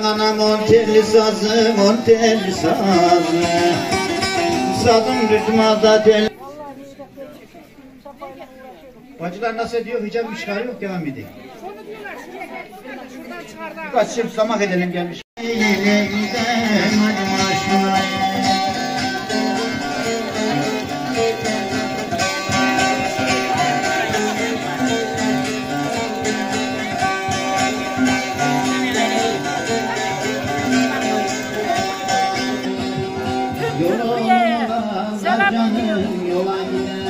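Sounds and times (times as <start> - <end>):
plucked lute folk music: 0.0 - 6.3, 15.4 - 37.0.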